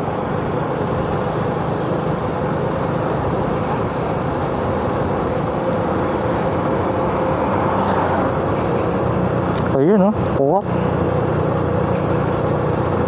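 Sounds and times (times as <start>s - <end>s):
motorcycle engine cruising: 0.0s - 13.0s
wind and road noise: 0.0s - 13.0s.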